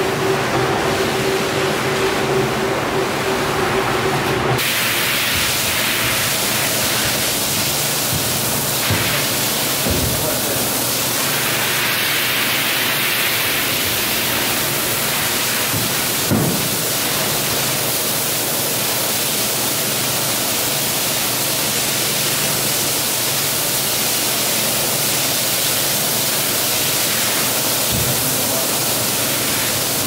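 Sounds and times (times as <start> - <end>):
water rushing: 4.6 - 19.6, 22.0 - 30.0
knock: 8.1 - 9.2, 9.8 - 10.2, 15.7 - 16.8.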